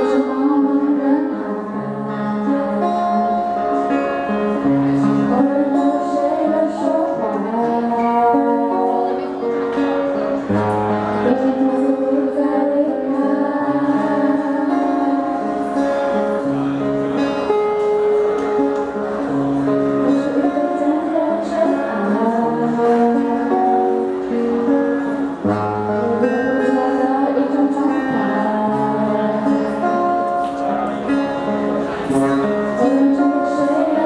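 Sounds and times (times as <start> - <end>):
women singing into microphones: 0.0 - 3.4, 5.2 - 9.4, 10.9 - 15.8, 20.0 - 30.2, 32.6 - 34.0
acoustic guitar: 0.0 - 34.0.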